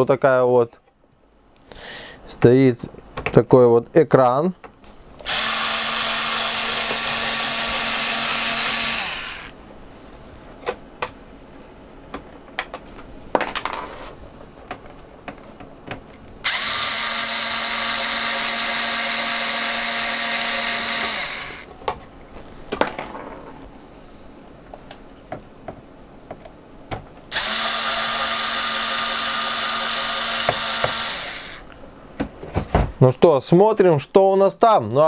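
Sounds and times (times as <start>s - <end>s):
cordless screwdriver running: 5.2s - 9.5s, 16.4s - 21.7s, 27.3s - 31.6s.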